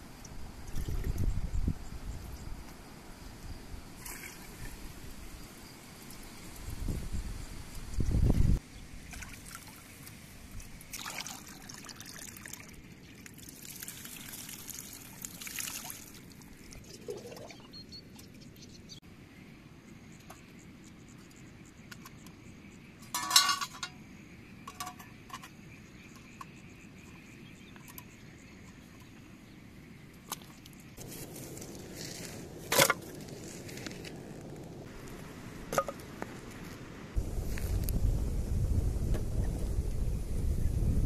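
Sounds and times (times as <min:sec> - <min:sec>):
water pouring and splashing: 0:09.0 - 0:17.7
stream trickling over stones: 0:09.0 - 0:17.8.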